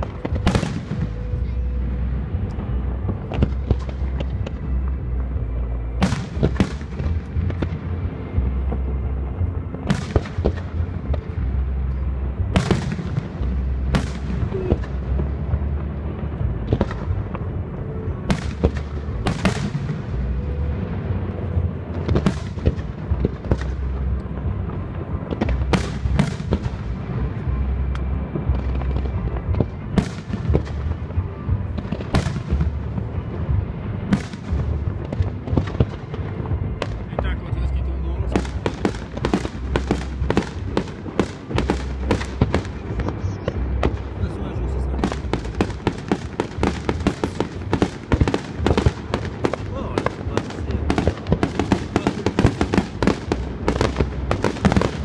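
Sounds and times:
fireworks bangs: 0.0 - 55.0
low rumble: 0.0 - 55.0.

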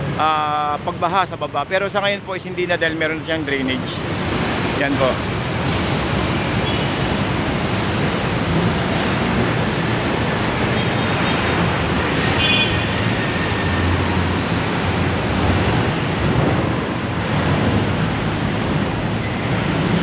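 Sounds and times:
road traffic passing close: 0.0 - 20.0
wind buffeting microphone: 4.0 - 20.0.

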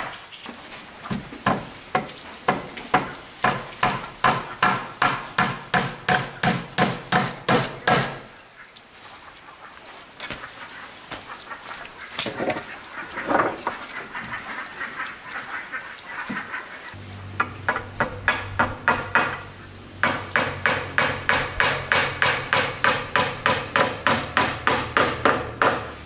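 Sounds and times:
hammer striking wood: 1.1 - 8.2, 17.4 - 19.4, 20.0 - 26.0.

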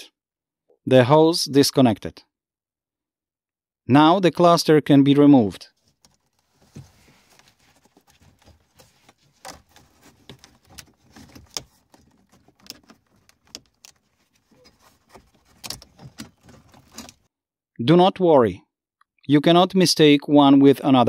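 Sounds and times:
faint plastic clicks and knocks: 5.8 - 17.2.

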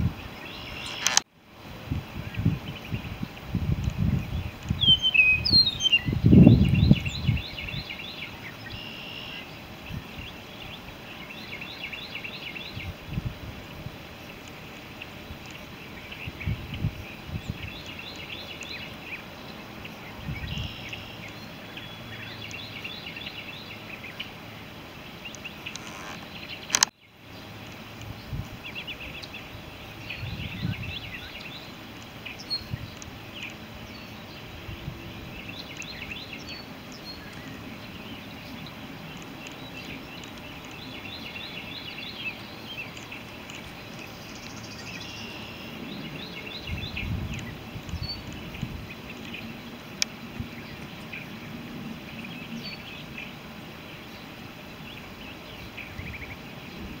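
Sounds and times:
birds chirping: 0.0 - 1.3, 2.0 - 57.0
steady outdoor hiss: 0.0 - 57.0
sharp click: 0.9 - 1.2, 25.3 - 26.9.

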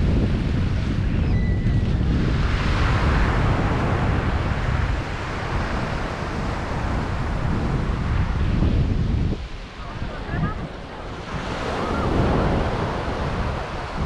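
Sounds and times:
surf washing onto beach: 0.0 - 14.0
wind buffeting microphone: 0.0 - 14.0.

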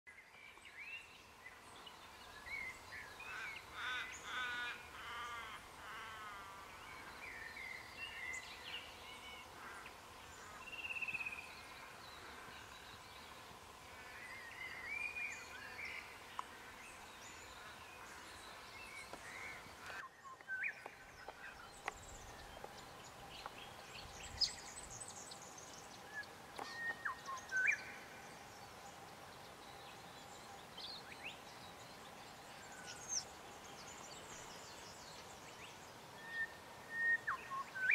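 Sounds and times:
birds chirping and whistling: 19.0 - 27.9, 36.2 - 37.9.

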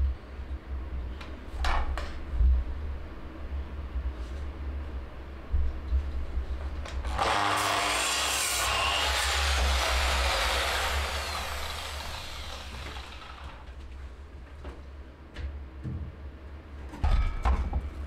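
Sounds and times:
mitre saw cutting wood: 7.1 - 13.7
saw blade winding down: 7.1 - 13.7.

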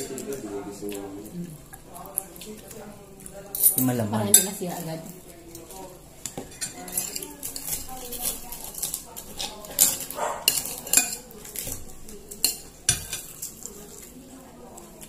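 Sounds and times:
spoons clinking against plates: 3.2 - 14.1.

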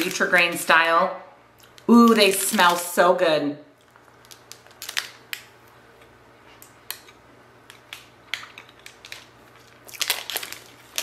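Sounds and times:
plastic wrapper crinkling: 0.0 - 0.7, 1.6 - 3.0, 3.8 - 5.8, 6.6 - 11.0
chewing cereal bar: 3.8 - 11.0.

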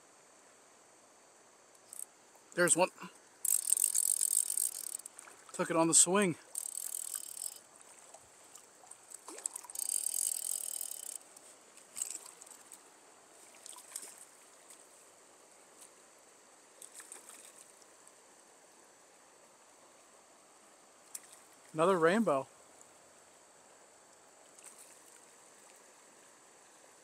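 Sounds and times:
reel clicks: 1.8 - 2.1, 3.4 - 7.7, 8.6 - 12.8
fly reel drag buzzing: 1.8 - 14.8.

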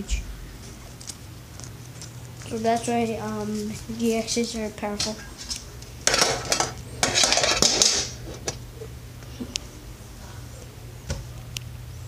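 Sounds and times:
low steady hum: 0.0 - 12.0
handling rustling and clatter: 0.6 - 8.6.

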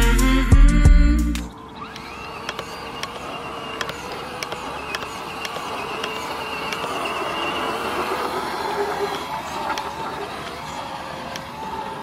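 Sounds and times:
electric motor and gears whining: 0.0 - 12.0
small clicks: 1.4 - 8.4
tyre noise on asphalt: 1.6 - 12.0.

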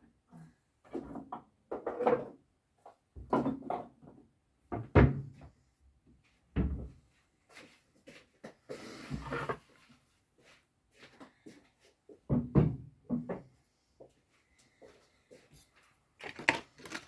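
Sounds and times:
knocks and clunks in cabinet: 3.2 - 5.4, 6.5 - 7.0, 12.3 - 13.5.

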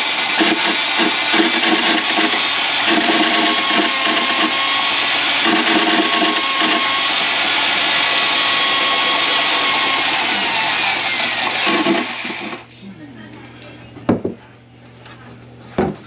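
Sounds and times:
drain cleaning machine running: 0.0 - 12.7.

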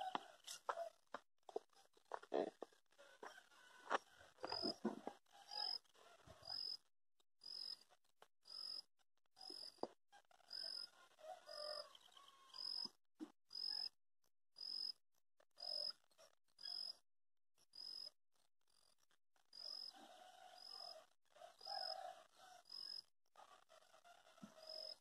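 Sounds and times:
faint high-pitched animal chirp: 5.4 - 5.8, 15.6 - 17.0.

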